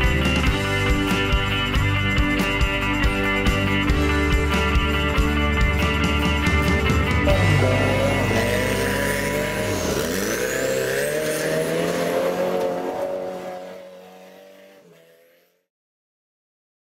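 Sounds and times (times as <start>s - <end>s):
engine revving: 5.8s - 15.7s.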